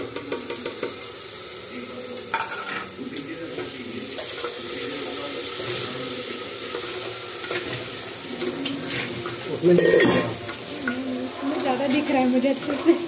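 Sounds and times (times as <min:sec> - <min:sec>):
paste sizzling in hot oil: 0:00.0 - 0:13.0
wooden spatula scraping: 0:08.4 - 0:10.6.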